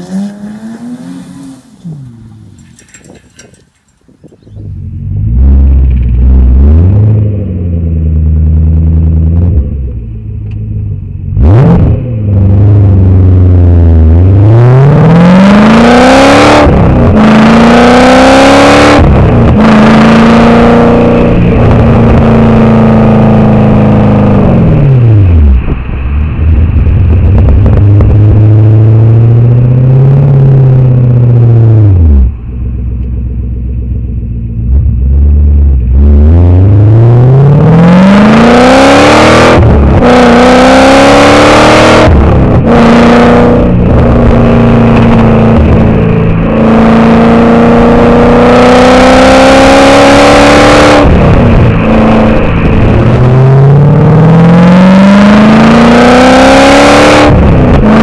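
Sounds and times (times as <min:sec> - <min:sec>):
car exhaust engine note: 0:00.7 - 0:58.0.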